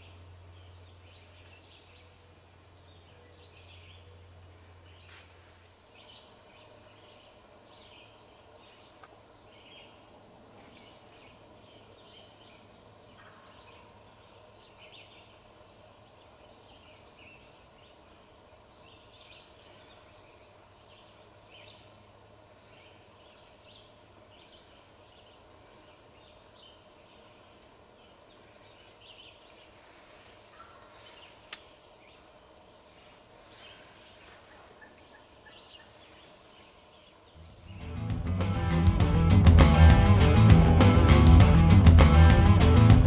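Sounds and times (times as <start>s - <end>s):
low steady hum: 0.0s - 43.0s.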